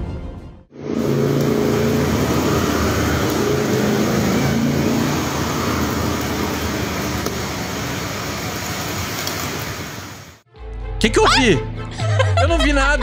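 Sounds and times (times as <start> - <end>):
vehicle engine running close by: 0.7 - 10.2
road noise: 0.7 - 10.5.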